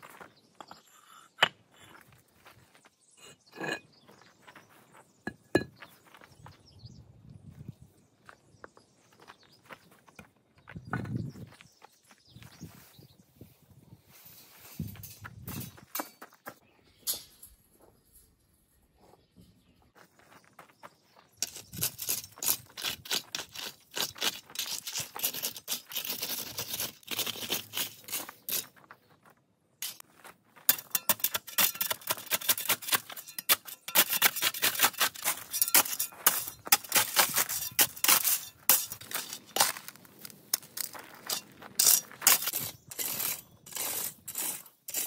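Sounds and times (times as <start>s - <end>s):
rake scraping through gravel: 21.4s - 29.0s, 29.8s - 45.0s.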